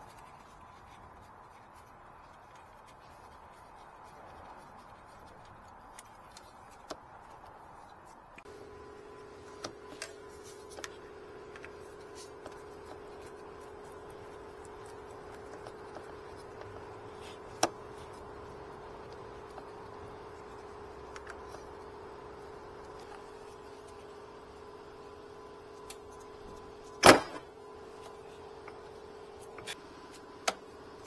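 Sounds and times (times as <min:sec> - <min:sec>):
steady hum: 0:07.2 - 0:31.0.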